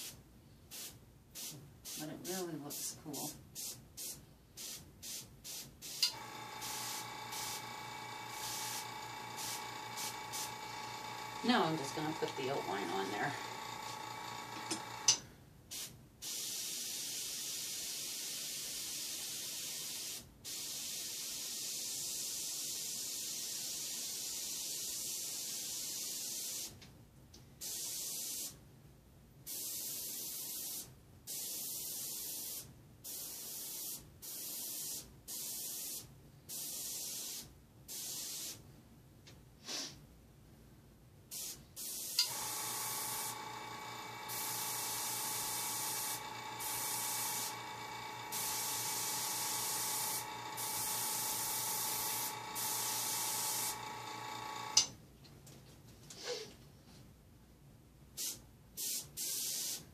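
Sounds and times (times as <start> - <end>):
airbrush hissing: 3.6 - 15.1, 41.4 - 54.9
air compressor humming: 6.0 - 15.2, 42.2 - 54.9.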